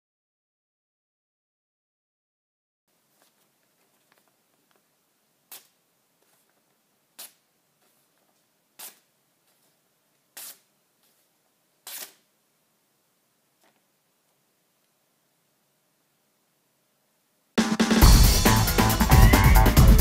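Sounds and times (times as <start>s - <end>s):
axe slicing through newspaper: 8.8s - 9.1s, 10.3s - 10.7s, 11.8s - 12.3s.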